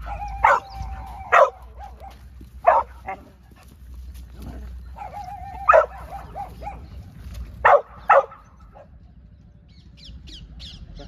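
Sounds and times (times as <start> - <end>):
puppy whining: 0.0 - 1.8
puppy barking: 0.0 - 3.3, 4.9 - 7.0, 7.6 - 8.9.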